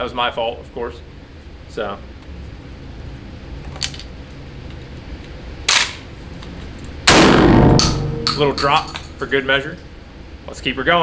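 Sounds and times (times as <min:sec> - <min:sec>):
shotgun shot ringing: 0:07.1 - 0:08.6.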